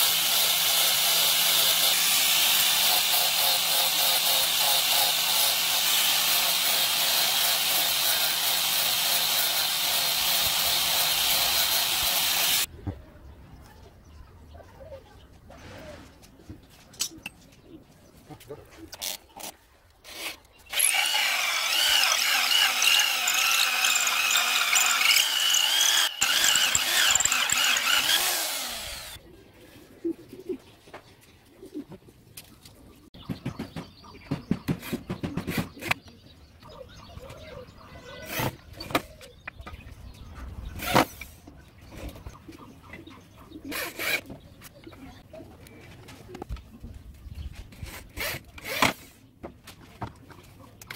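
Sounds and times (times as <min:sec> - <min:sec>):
hole saw screeching through wood: 0:00.0 - 0:12.7, 0:19.0 - 0:29.2, 0:43.7 - 0:44.3
drill boring in short bursts: 0:20.7 - 0:29.2.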